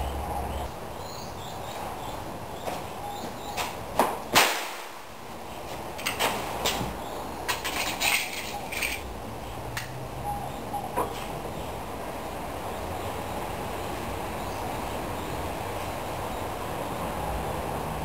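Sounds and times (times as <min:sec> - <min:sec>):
sharp pistol shot: 0:04.3 - 0:04.9.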